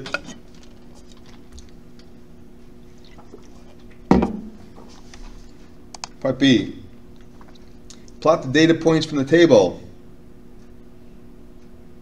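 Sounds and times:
faint steady hum: 0:00.0 - 0:12.0
sharp knock: 0:04.1 - 0:04.6.

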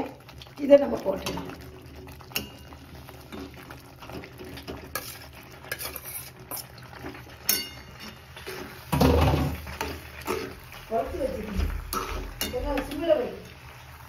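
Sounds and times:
metal spoon scraping pan: 0:04.2 - 0:13.3
spoon bumping pan: 0:11.1 - 0:13.1.

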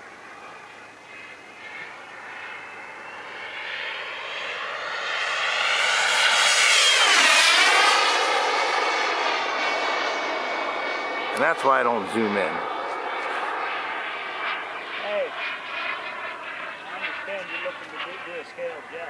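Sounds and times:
jet turbine whine flyby: 0:00.0 - 0:19.0.

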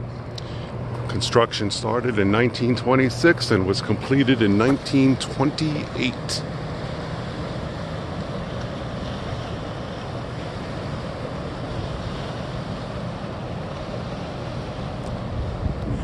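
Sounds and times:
water rushing through dam spillway: 0:00.4 - 0:16.0
wind on microphone: 0:15.0 - 0:16.0.

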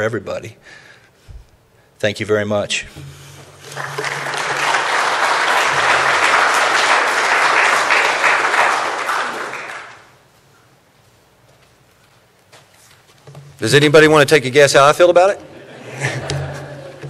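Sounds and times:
audience applauding: 0:03.6 - 0:10.2.

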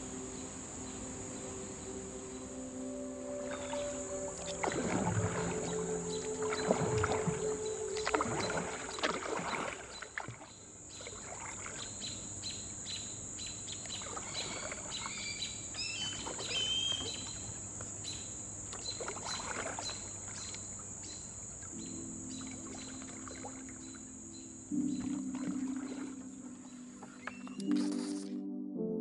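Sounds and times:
low steady music tones: 0:00.0 - 0:09.8, 0:21.0 - 0:29.0
bird warbling song: 0:00.3 - 0:28.1
kayak paddle strokes in water: 0:03.4 - 0:12.4, 0:13.8 - 0:21.7, 0:22.4 - 0:24.0, 0:24.8 - 0:27.4.

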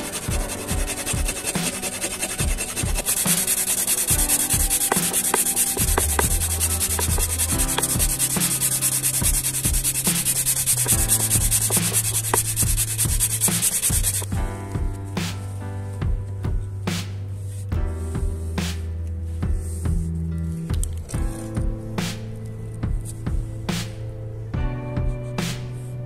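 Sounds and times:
file drawn over wood: 0:00.0 - 0:14.3
sandpaper rubbing on wood: 0:00.0 - 0:14.3.

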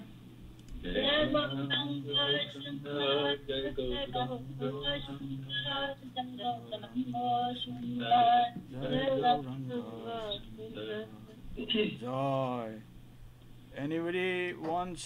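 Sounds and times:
voices singing a chant: 0:00.8 - 0:12.1.

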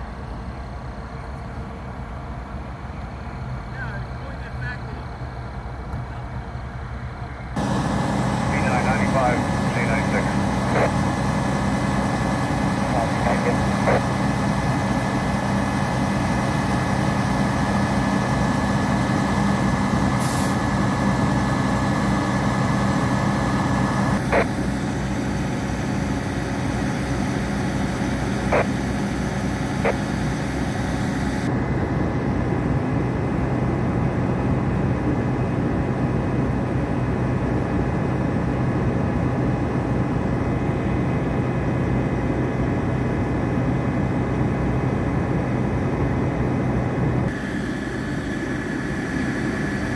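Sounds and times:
vehicle engines idling: 0:00.0 - 0:49.9.

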